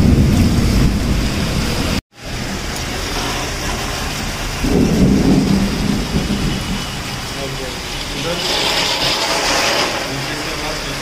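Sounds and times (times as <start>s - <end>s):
low rumble: 0.0s - 3.1s, 4.2s - 8.1s
heavy rain falling: 0.0s - 11.0s
water running and splashing: 0.0s - 11.0s.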